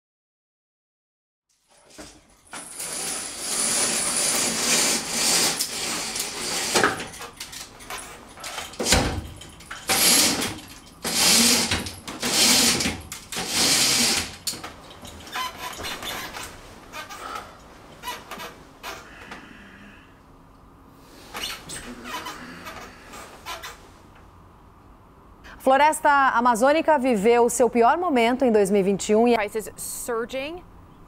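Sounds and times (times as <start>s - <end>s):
curtains sliding along rail: 1.6s - 19.2s.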